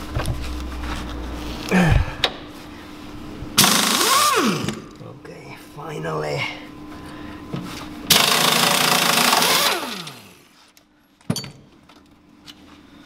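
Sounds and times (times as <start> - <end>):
impact wrench whirring: 3.6 - 5.0, 8.1 - 10.6.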